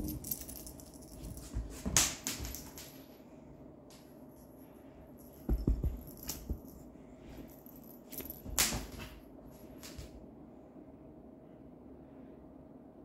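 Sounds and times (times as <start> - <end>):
toy clattering across floor: 0.0 - 3.0, 5.2 - 6.8
soft thumps on wooden floor: 5.5 - 6.6.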